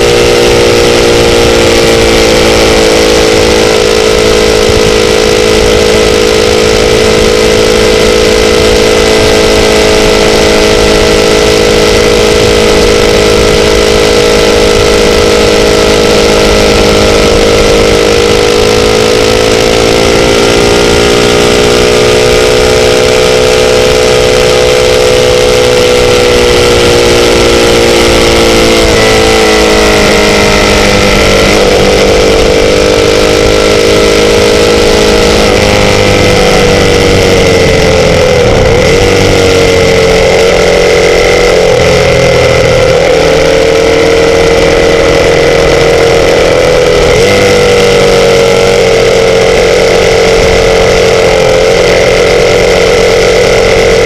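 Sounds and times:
sportbike engine droning: 0.0 - 54.0
rushing noise: 33.9 - 51.9.

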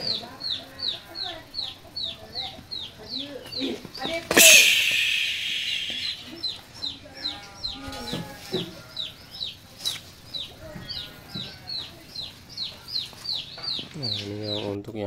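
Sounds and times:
bird chirping: 0.0 - 8.1, 10.3 - 14.7
sharp knock: 4.3 - 6.2.

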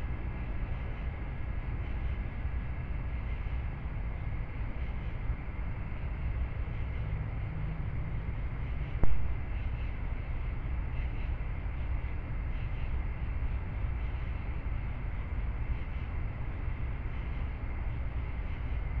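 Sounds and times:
low rumble and hiss: 0.0 - 19.0.

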